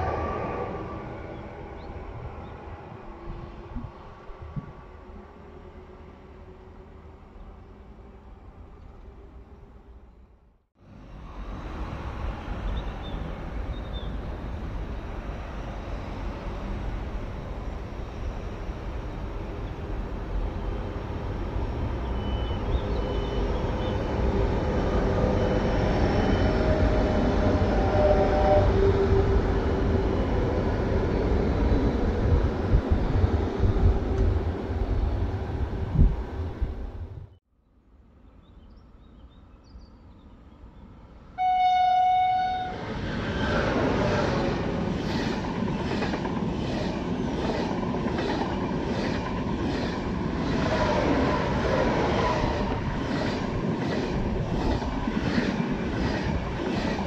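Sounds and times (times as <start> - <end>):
train wheels rumbling on rail: 10.9 - 37.4, 42.8 - 57.0.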